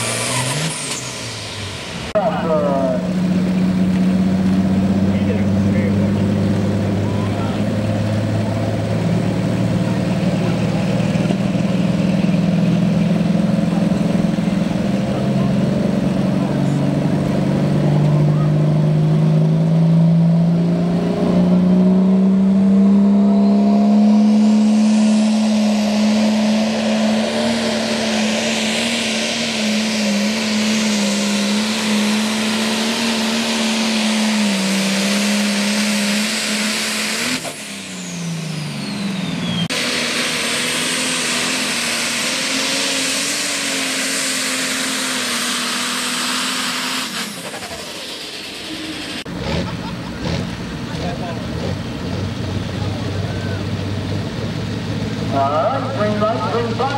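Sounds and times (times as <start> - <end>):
high whine: 0.0 - 33.6.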